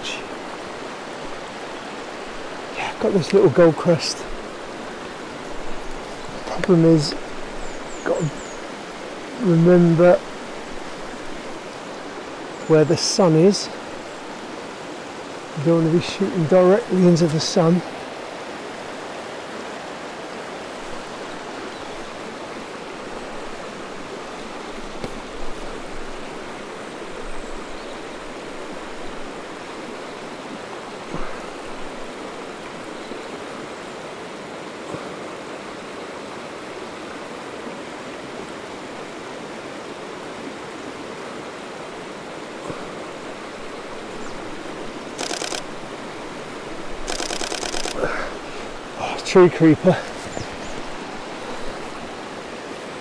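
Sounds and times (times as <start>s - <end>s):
river flowing: 0.0s - 53.0s
camera shutter clicks: 45.2s - 45.7s, 47.1s - 48.0s.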